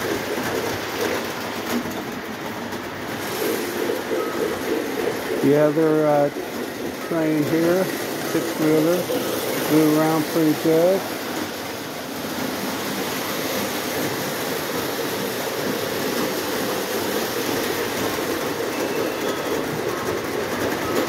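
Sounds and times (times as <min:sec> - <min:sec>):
model train wheels and motors: 0:00.0 - 0:21.0.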